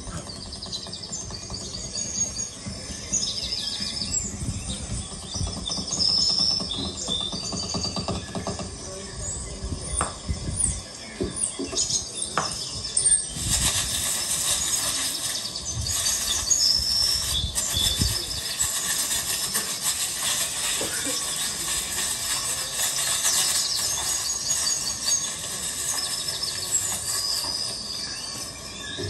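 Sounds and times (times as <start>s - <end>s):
plastic sheeting rustling and scraping: 12.9s - 29.0s.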